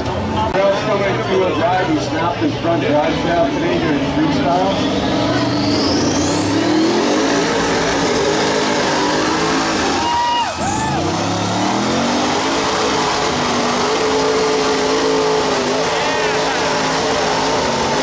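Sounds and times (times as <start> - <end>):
tires churning mud: 1.7 - 18.0
buggy engine revving hard: 3.8 - 18.0.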